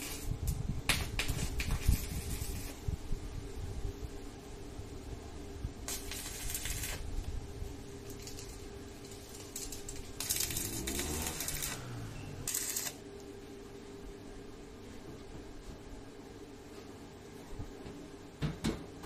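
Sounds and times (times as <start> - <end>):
arc welding crackle: 0.0 - 3.0, 5.8 - 13.1
steady low hum: 0.0 - 18.4.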